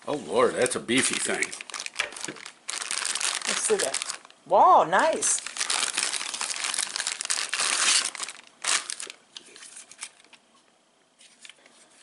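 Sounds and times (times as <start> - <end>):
plastic bag crinkling: 0.9 - 4.4, 5.0 - 10.4.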